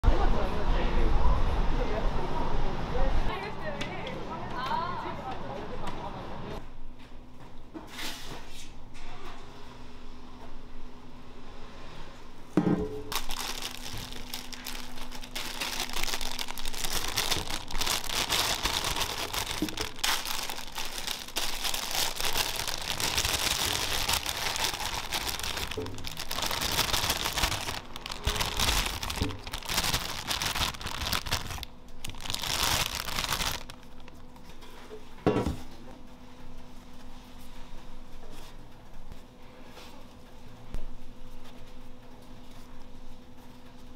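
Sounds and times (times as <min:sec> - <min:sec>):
plastic bag crinkling: 0:13.1 - 0:34.4.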